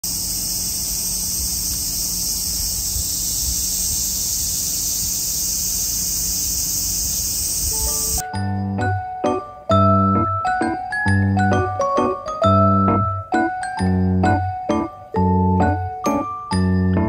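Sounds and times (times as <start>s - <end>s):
cicadas shrilling: 0.0s - 8.3s
piano music: 7.8s - 17.0s.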